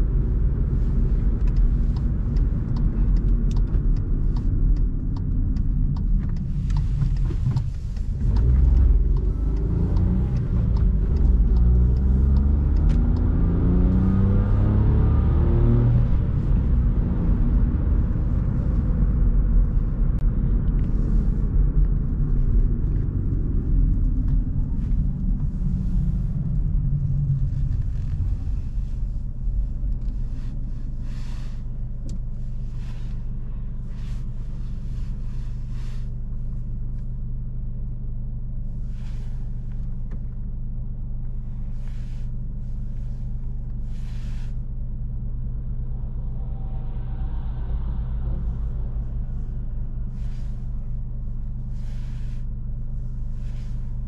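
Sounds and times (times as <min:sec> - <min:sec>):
car engine idling: 0:00.0 - 0:54.0
road and engine rumble: 0:00.0 - 0:54.0.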